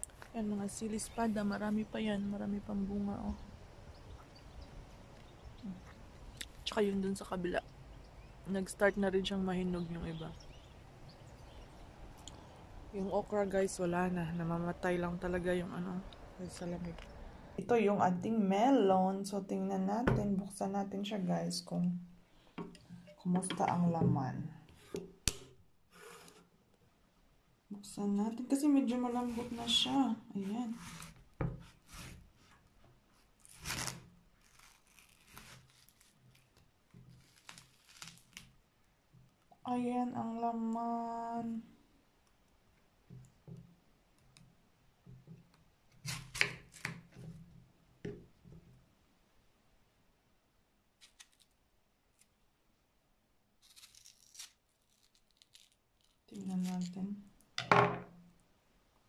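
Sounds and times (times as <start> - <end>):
woman's voice: 0.3 - 3.4, 6.6 - 7.6, 8.5 - 10.3, 12.9 - 17.0, 17.6 - 22.0, 23.2 - 24.5, 27.7 - 30.8, 39.6 - 41.7, 56.3 - 57.3
knife slicing watermelon rind: 30.7 - 32.2, 33.5 - 36.2, 46.0 - 47.0.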